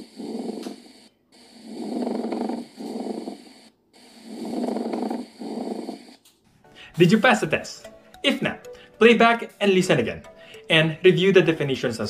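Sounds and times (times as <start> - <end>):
rough rubbing breath sounds: 0.0 - 7.0.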